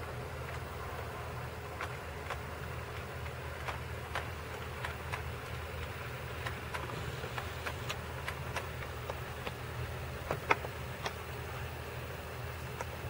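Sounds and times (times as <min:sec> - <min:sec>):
model train motor hum: 0:00.0 - 0:13.0
wheels clicking on rails: 0:00.0 - 0:13.0.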